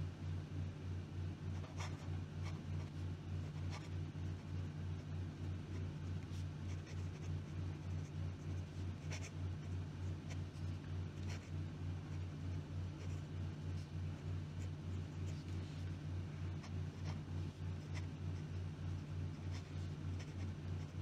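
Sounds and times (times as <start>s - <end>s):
pulsing low hum: 0.0s - 21.0s
pen scratching on paper: 5.7s - 9.4s, 16.6s - 21.0s.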